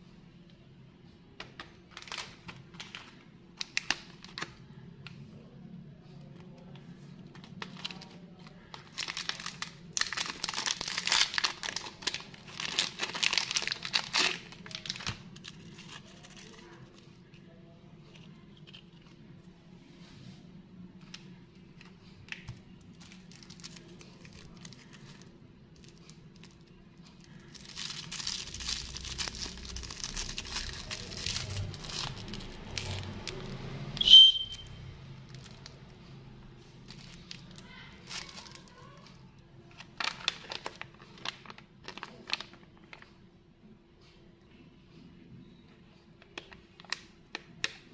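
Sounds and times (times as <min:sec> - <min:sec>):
plastic wrappers crinkling: 0:01.4 - 0:04.6, 0:07.0 - 0:17.1, 0:21.2 - 0:33.7, 0:35.3 - 0:35.9, 0:36.8 - 0:43.1, 0:46.2 - 0:47.8.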